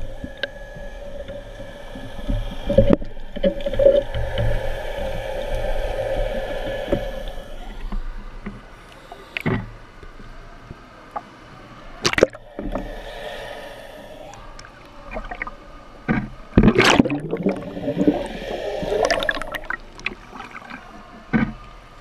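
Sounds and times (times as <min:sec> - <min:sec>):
knocks underwater: 0:12.0 - 0:12.7
water sloshing: 0:12.0 - 0:21.8
muffled underwater hum: 0:12.0 - 0:21.9.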